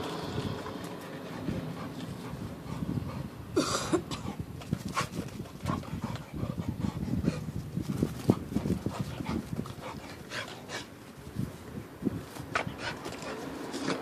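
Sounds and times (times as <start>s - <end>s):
dog panting: 0.9s - 3.6s, 4.2s - 11.0s.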